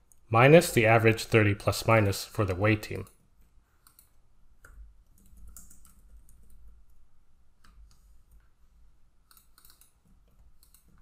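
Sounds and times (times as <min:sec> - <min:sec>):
faint computer keyboard typing: 0:03.0 - 0:08.5, 0:09.2 - 0:11.0.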